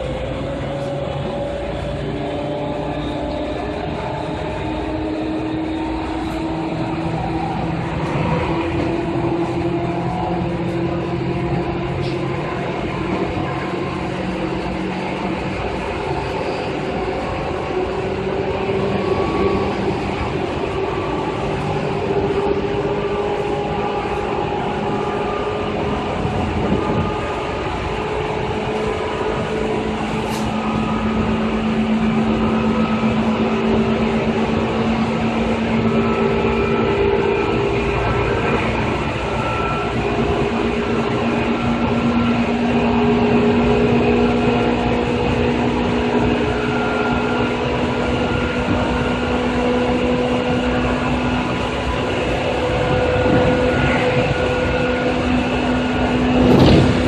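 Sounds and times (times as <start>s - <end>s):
train motor whine: 0.0s - 57.0s
train wheels rumbling on rail: 0.0s - 57.0s.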